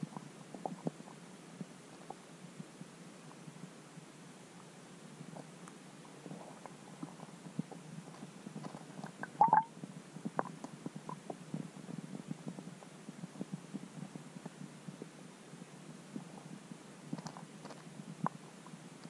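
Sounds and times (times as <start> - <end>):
underwater low rumble: 7.0 - 10.4
underwater clicks and ticks: 7.7 - 9.7, 10.3 - 11.4.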